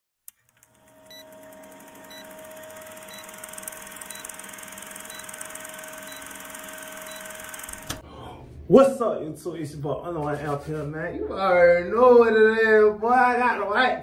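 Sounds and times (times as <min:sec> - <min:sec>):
film projector clatter: 0:00.5 - 0:08.0.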